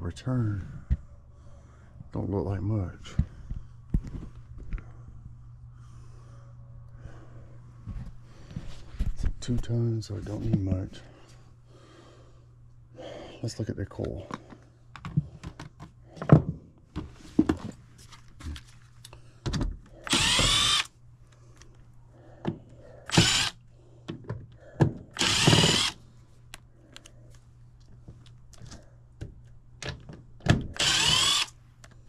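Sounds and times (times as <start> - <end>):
cordless drill motor whine: 20.0 - 20.9, 23.1 - 23.6, 25.2 - 26.0, 30.8 - 31.6.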